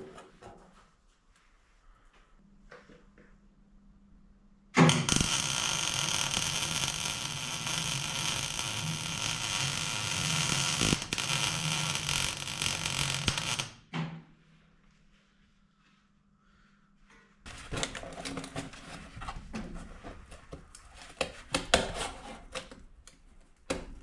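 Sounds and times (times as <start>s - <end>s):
welding arc crackling: 4.9s - 13.8s.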